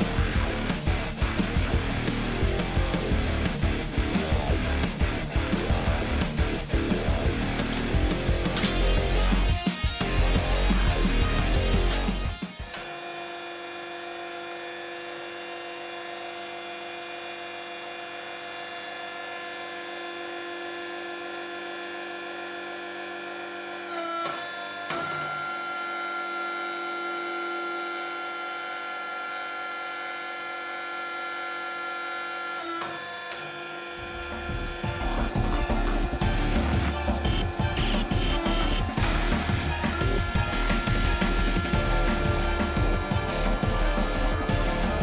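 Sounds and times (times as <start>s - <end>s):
hydraulic pump motor whine: 0.0s - 45.0s.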